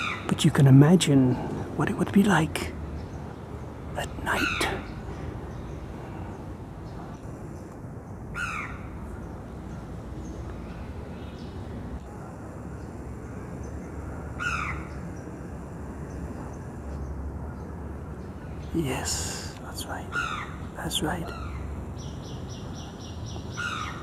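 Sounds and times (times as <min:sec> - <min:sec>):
crow cawing: 0:08.4 - 0:08.8, 0:14.4 - 0:15.0, 0:20.1 - 0:20.6, 0:23.5 - 0:24.0.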